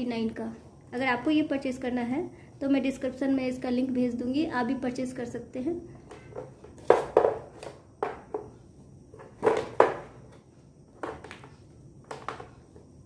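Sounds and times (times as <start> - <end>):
knocks and clacks on tile floor: 6.0 - 13.0.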